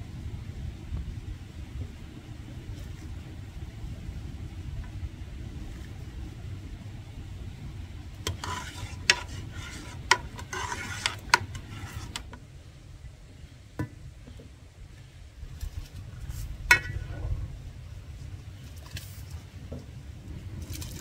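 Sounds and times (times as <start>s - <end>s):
low steady rumble: 0.0s - 21.0s
metal spoon scraping pot: 8.2s - 12.3s.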